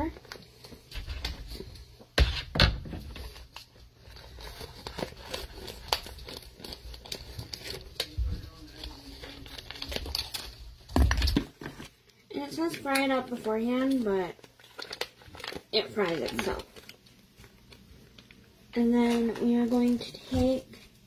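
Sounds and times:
plastic package crinkling: 0:03.2 - 0:11.9, 0:12.6 - 0:20.6.

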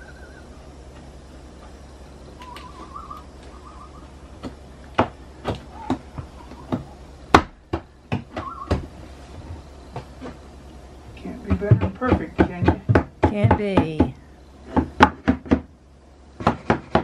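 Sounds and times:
faint warbling whistle: 0:02.4 - 0:04.1
knocks on wooden trim: 0:11.5 - 0:14.1.

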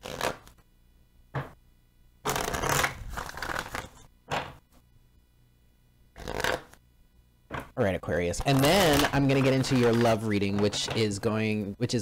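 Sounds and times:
cards being shuffled: 0:00.0 - 0:00.6, 0:02.3 - 0:04.6, 0:06.2 - 0:06.8, 0:08.3 - 0:11.3.

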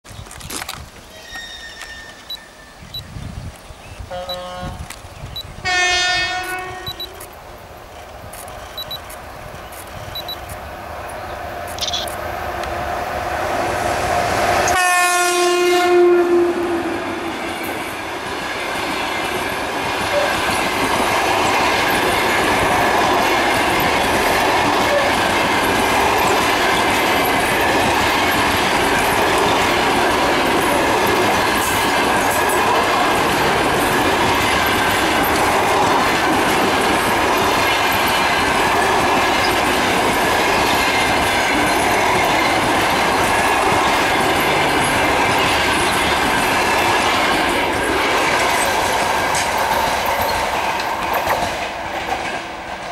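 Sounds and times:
train coaches rolling on rails: 0:00.1 - 0:52.9
locomotive horn: 0:04.1 - 0:04.8, 0:05.6 - 0:07.2, 0:14.7 - 0:17.2.

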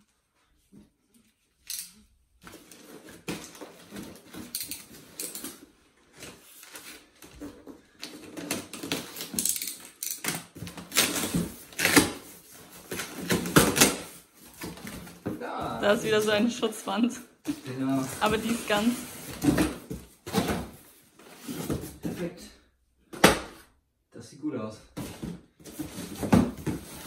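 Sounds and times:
cardboard packaging rustling: 0:17.5 - 0:22.2.

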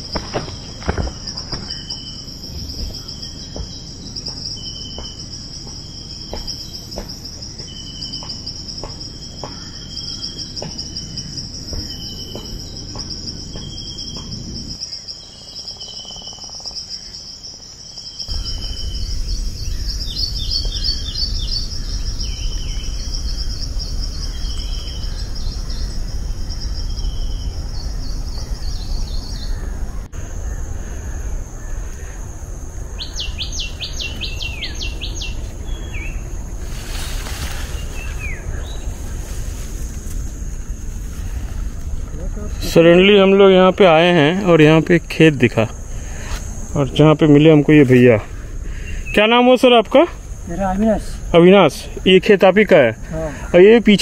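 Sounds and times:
footsteps crunching on dry leaves: 0:00.0 - 0:02.1, 0:36.6 - 0:41.5
crickets trilling: 0:00.0 - 0:54.0
short insect chirps: 0:00.0 - 0:54.0
bird chirps: 0:06.0 - 0:17.2, 0:17.9 - 0:31.7, 0:32.9 - 0:36.5.

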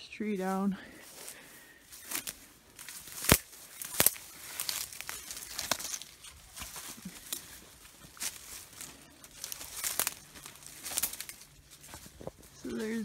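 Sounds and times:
footsteps crunching dry leaves: 0:00.3 - 0:13.0
sharp twig cracks: 0:02.1 - 0:07.5, 0:09.4 - 0:11.5.

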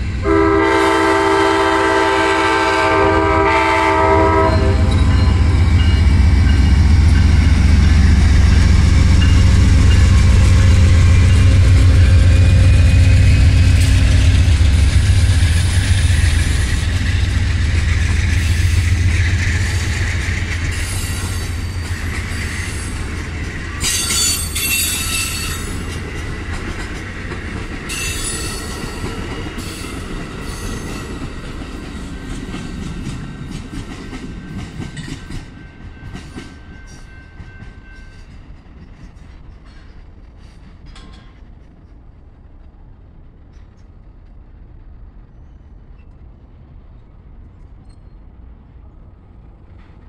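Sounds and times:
train rolling on rails: 0:00.0 - 0:50.0
train wheel squeals: 0:04.4 - 0:26.0, 0:27.9 - 0:41.5, 0:45.3 - 0:46.3, 0:47.6 - 0:48.3.

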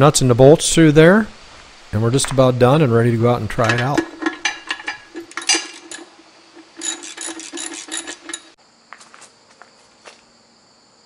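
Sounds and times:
insects trilling: 0:00.4 - 0:11.0
wrench clicking: 0:03.7 - 0:08.6.

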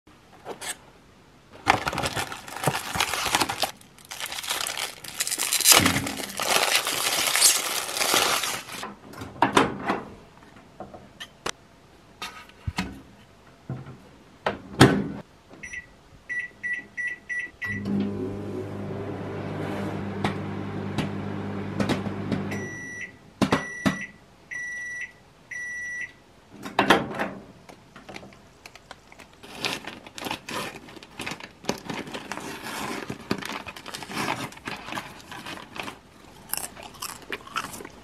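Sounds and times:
cardboard packaging crinkling: 0:01.6 - 0:08.8, 0:28.8 - 0:38.0.

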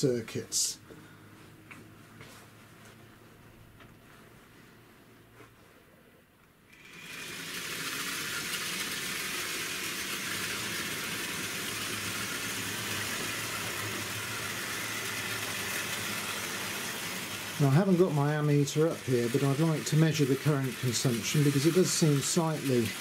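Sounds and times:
model train motor whirring and rattling: 0:06.7 - 0:23.0.

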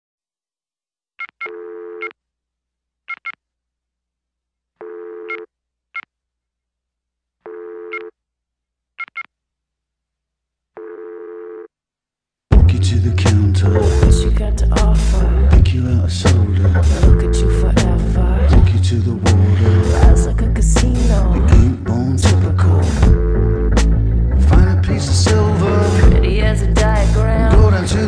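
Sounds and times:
keypad beeps: 0:09.0 - 0:09.3
band music: 0:12.6 - 0:28.0.

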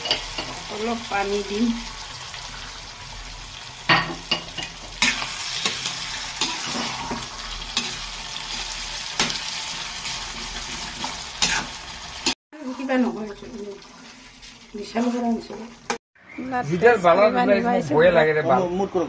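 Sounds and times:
meat sizzling in a pan: 0:00.0 - 0:16.0
spatula scraping a pan: 0:04.2 - 0:13.3.

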